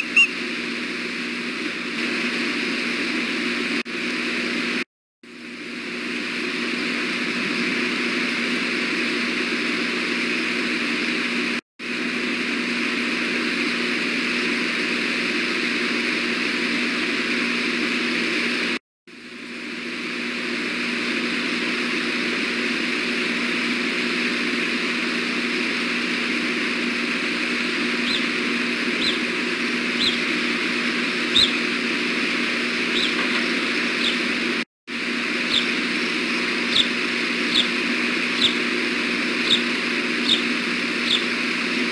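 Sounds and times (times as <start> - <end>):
high bird chirps: 0.0 - 0.3, 28.0 - 28.3, 29.0 - 29.2, 30.0 - 30.3, 31.3 - 31.7, 32.9 - 33.2, 34.0 - 34.2, 35.5 - 37.8, 38.4 - 38.6, 39.5 - 41.3.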